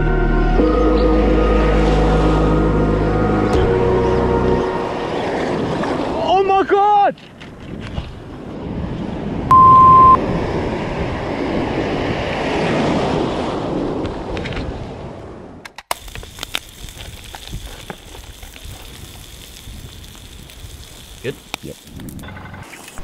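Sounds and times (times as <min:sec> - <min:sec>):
censor bleep: 0:09.5 - 0:10.2
food frying in a pan: 0:16.1 - 0:22.2.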